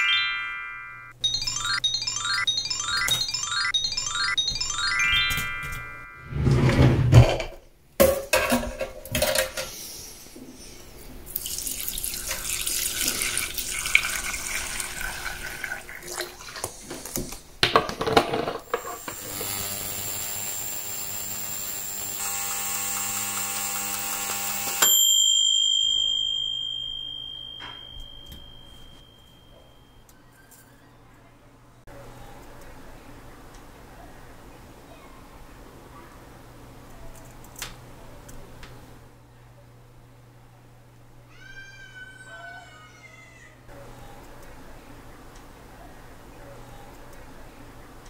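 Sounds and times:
high tone: 0:00.0 - 0:06.5, 0:24.9 - 0:30.0
ultrasonic cleaner humming buzz: 0:18.7 - 0:25.0.

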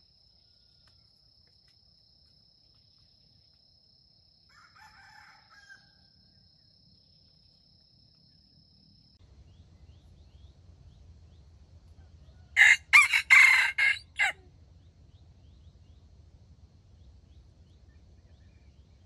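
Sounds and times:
rooster crowing: 0:04.5 - 0:06.1, 0:12.0 - 0:14.4.

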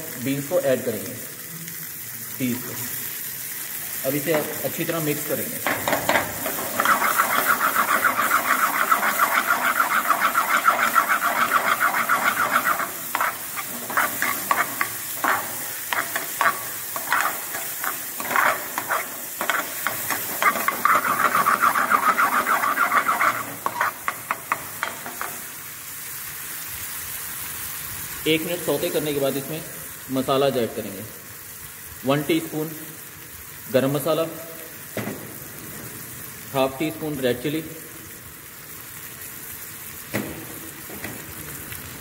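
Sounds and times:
oil sizzling: 0:00.0 - 0:42.0
ladle scraping metal pan: 0:05.6 - 0:25.4.

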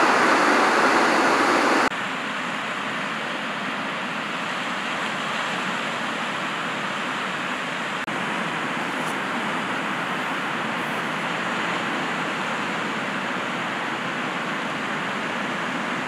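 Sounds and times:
surf breaking on beach: 0:00.0 - 0:01.9.

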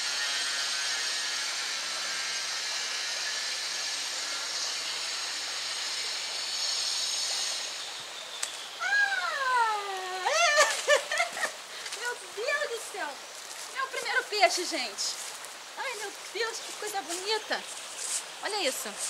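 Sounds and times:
high-pitched hiss: 0:00.0 - 0:19.0
woman squealing with excitement: 0:08.8 - 0:11.5.

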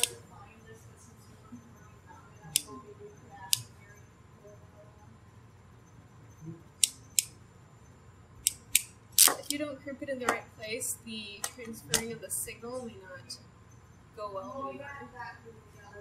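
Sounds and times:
crimping tool clicking: 0:08.4 - 0:09.6.

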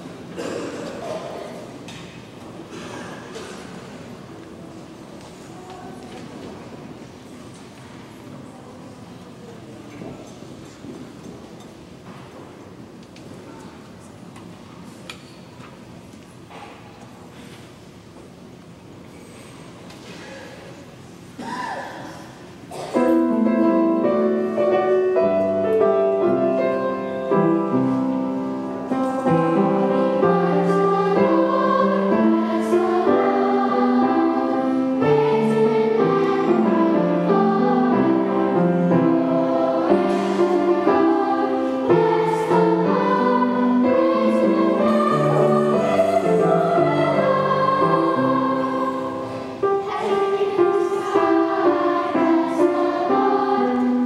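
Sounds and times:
children's choir singing: 0:00.0 - 0:01.9, 0:22.7 - 0:54.0
piano accompaniment: 0:22.9 - 0:54.0.

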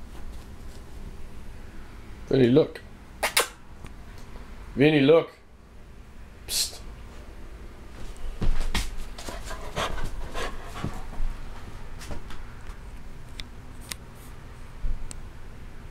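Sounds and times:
dog panting: 0:09.2 - 0:11.4.

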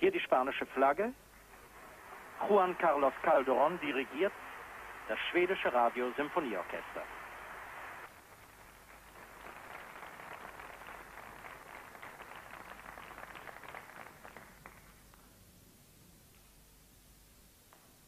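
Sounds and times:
audience applauding: 0:01.4 - 0:15.4.

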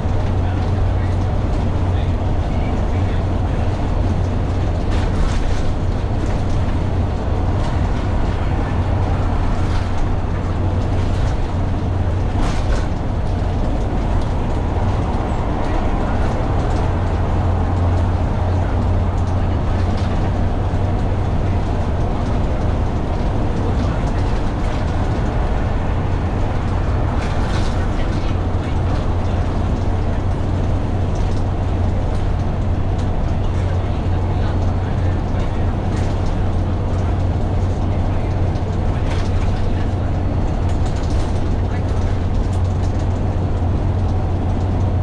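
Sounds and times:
bus engine drone: 0:00.0 - 0:45.0
road noise: 0:00.0 - 0:45.0.

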